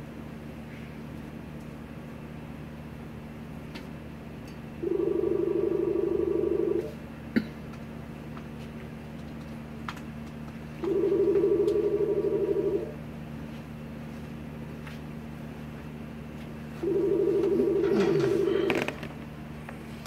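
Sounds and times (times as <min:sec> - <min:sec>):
telephone ringback tone: 0:04.8 - 0:07.0, 0:10.8 - 0:13.0, 0:16.8 - 0:18.9.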